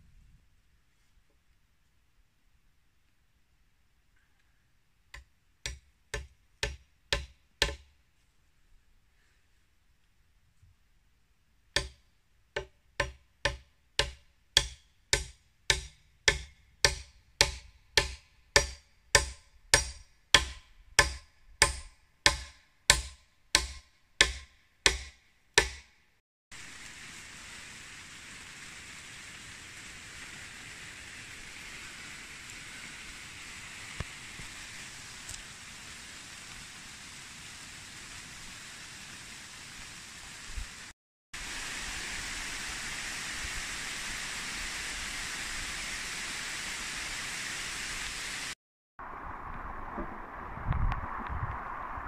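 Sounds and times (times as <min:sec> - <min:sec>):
steady even hiss: 0:26.6 - 0:52.0.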